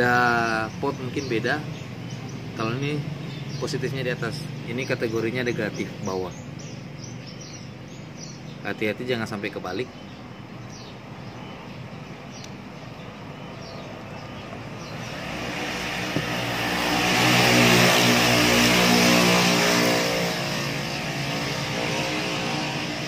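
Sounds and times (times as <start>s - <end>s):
vehicle passing: 10.3s - 23.0s.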